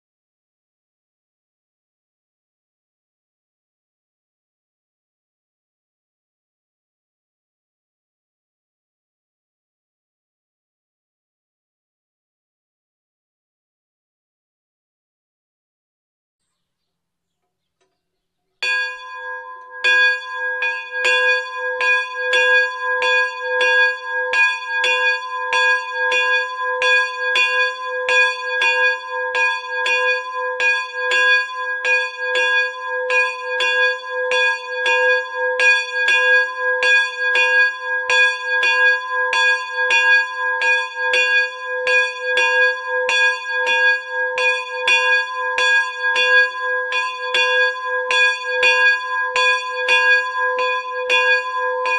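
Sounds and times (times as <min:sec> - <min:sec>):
bell ringing: 0:18.6 - 0:27.7, 0:49.8 - 0:51.9.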